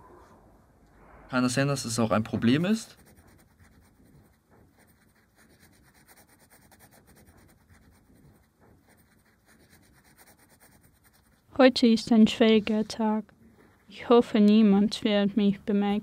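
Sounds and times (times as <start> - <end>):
pencil scratching on paper: 1.9 - 13.2.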